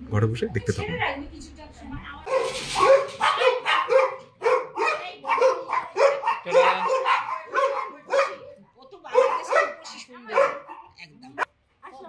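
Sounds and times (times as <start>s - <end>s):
dog barking: 2.3s - 11.0s.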